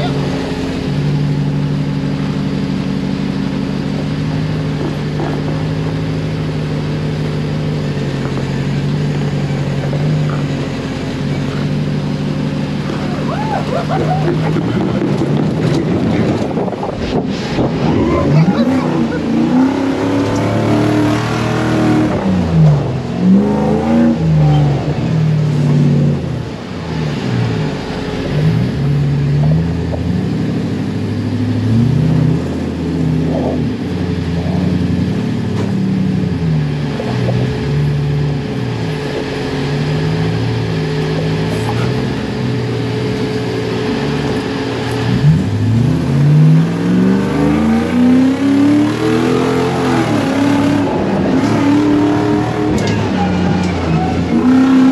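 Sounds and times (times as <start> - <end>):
buggy engine revving: 0.0 - 54.9.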